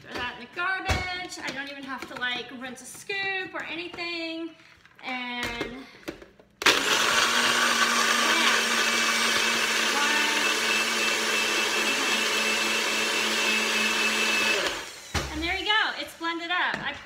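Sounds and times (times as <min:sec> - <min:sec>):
blender blending ice: 0:06.6 - 0:15.3.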